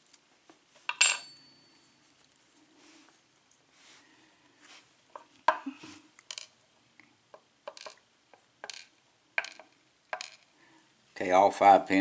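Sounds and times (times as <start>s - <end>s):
small metal parts clinking: 0.9s - 1.4s, 6.3s - 6.5s, 7.7s - 8.0s, 8.6s - 10.5s.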